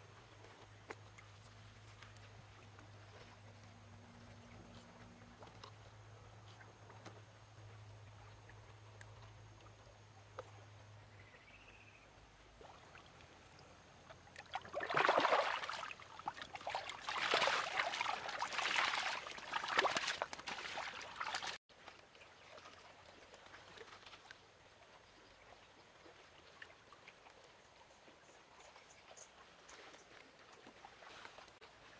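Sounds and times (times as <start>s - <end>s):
water splashing and churning: 0.0s - 4.8s, 12.4s - 31.9s
faint trickle of water: 0.1s - 31.9s.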